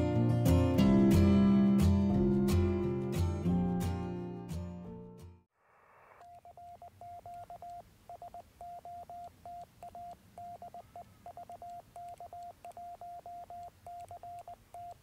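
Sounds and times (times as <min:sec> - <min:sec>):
morse code tone: 0:06.2 - 0:15.0.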